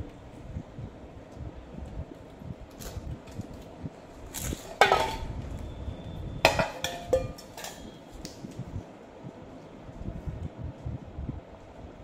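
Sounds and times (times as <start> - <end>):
steel bowls clanking: 4.7 - 5.4, 6.4 - 8.0.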